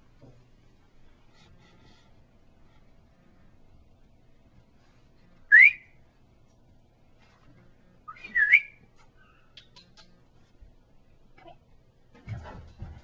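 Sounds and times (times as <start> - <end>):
loud whistles: 5.5 - 6.0, 8.1 - 8.8.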